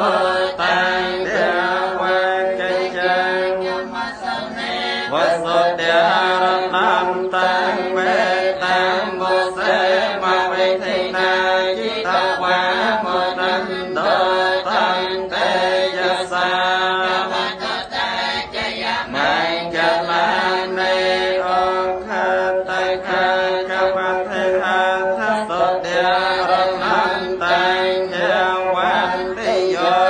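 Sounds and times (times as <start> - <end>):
group chanting prayers: 0.0 - 30.0.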